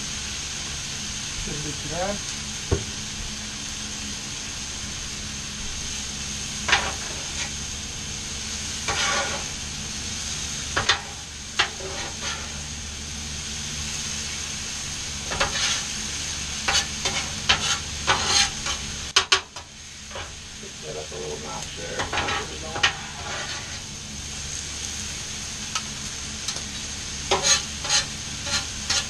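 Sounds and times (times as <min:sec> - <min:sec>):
vegetables sizzling on griddle: 0:00.0 - 0:29.0
metal spatulas scraping griddle: 0:06.6 - 0:07.6, 0:08.8 - 0:09.6, 0:10.8 - 0:12.7, 0:15.2 - 0:16.0, 0:16.6 - 0:20.4, 0:22.0 - 0:23.9, 0:27.3 - 0:29.0.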